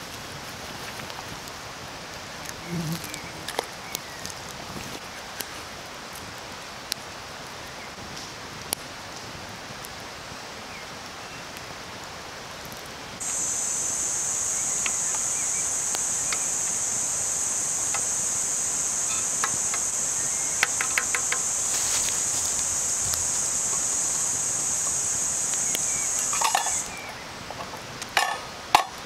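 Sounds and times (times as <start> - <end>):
campfire crackling: 0.0 - 29.0
high-pitched insect drone: 13.2 - 27.1.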